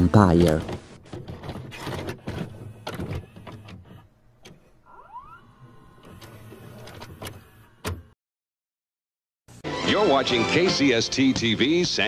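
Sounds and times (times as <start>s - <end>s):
tape deck clicks and clunks: 0.4s - 4.7s
motor whine: 4.5s - 8.1s.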